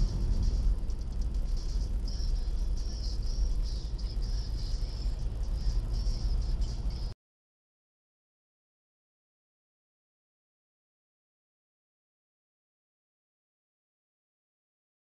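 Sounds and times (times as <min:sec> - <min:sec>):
car road and engine rumble: 0:00.0 - 0:07.2.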